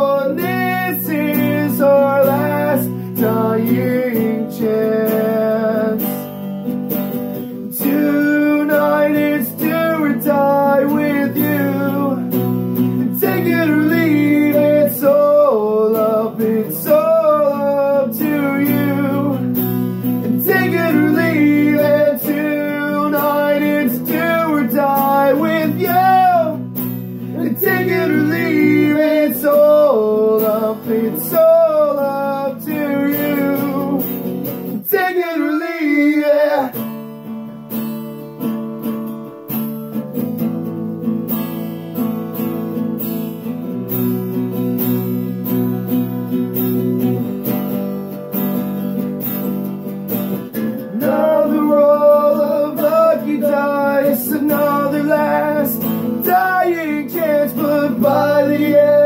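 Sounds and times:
man singing: 0:00.0 - 0:06.2, 0:07.6 - 0:37.0, 0:50.6 - 0:59.0
acoustic guitar strumming chords: 0:00.0 - 0:59.0.

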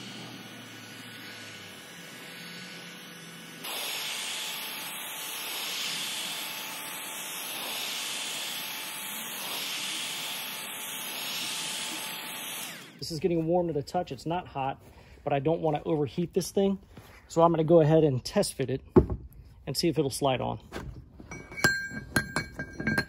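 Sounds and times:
heat gun blowing hot air: 0:00.0 - 0:13.3.

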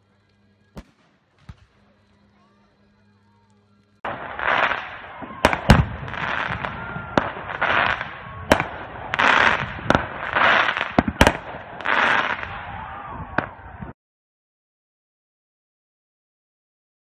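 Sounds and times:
fireworks hissing bursts: 0:00.0 - 0:13.9
sharp firework bangs: 0:00.8 - 0:02.0, 0:04.0 - 0:13.9.

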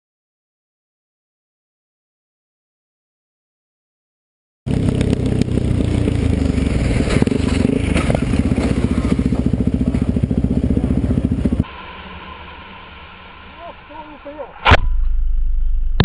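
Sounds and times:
vehicle engine running loudly: 0:04.7 - 0:14.6
sharp clattering knocks and scrapes: 0:06.6 - 0:09.4.

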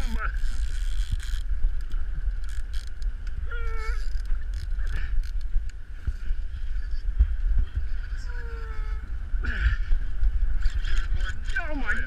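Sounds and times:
outboard motor rumbling: 0:00.0 - 0:12.0
wind on microphone: 0:00.0 - 0:12.0
small clicks: 0:00.3 - 0:05.8.

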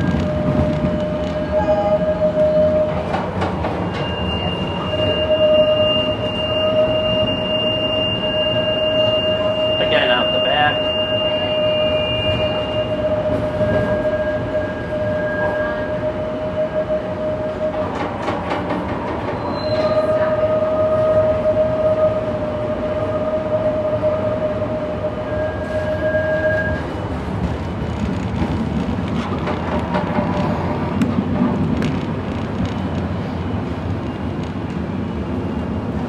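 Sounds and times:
streetcar rumbling: 0:00.0 - 0:36.0
streetcar whine: 0:00.0 - 0:36.0.

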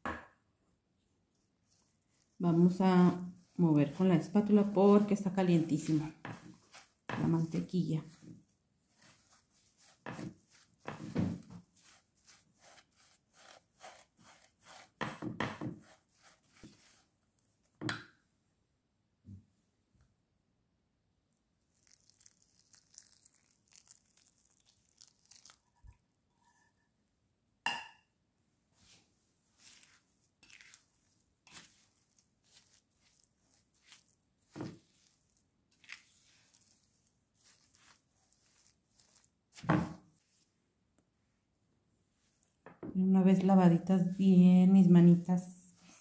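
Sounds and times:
spatula scraping cookie crumbs: 0:01.4 - 0:17.2, 0:21.8 - 0:26.7, 0:28.8 - 0:40.5, 0:43.5 - 0:46.0.

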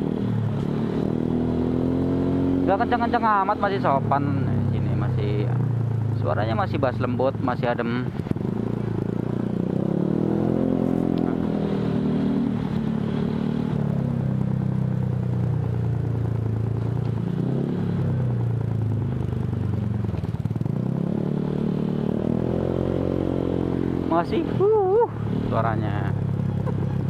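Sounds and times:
scooter engine revving: 0:08.0 - 0:27.0.

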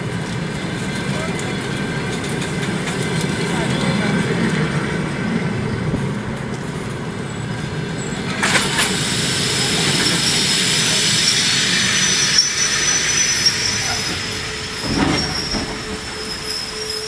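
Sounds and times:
train wheels rolling on rail: 0:00.0 - 0:17.0
high brake and wheel squeal: 0:07.3 - 0:17.0
clatter over rail joint: 0:14.8 - 0:16.2.

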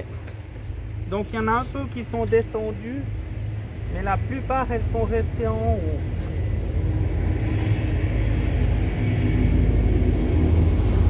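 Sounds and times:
honeybees buzzing: 0:00.0 - 0:11.0
low rumble: 0:00.0 - 0:11.0.

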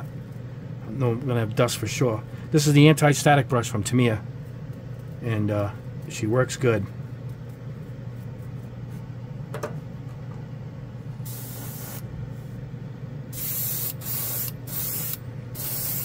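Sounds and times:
steady low hum: 0:00.0 - 0:16.0
airbrush spraying hiss: 0:11.3 - 0:12.1, 0:13.4 - 0:16.0.

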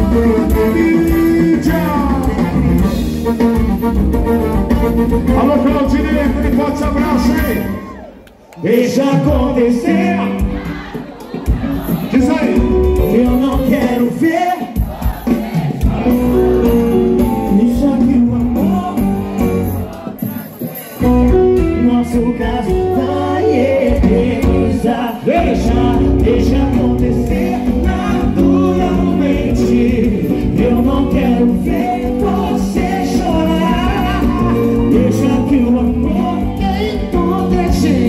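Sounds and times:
man singing: 0:00.0 - 0:03.1, 0:05.2 - 0:08.0, 0:08.6 - 0:10.7, 0:12.0 - 0:14.9, 0:15.9 - 0:38.0
heavy bass: 0:00.0 - 0:07.6, 0:21.0 - 0:38.0
electric guitar: 0:00.0 - 0:08.1, 0:21.0 - 0:38.0
live band playing dance music: 0:00.0 - 0:38.0.

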